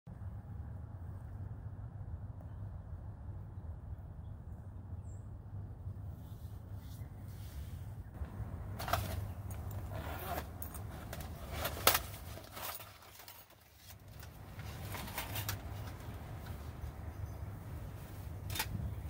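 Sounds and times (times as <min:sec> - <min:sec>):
rustling pouch: 0:08.2 - 0:17.0.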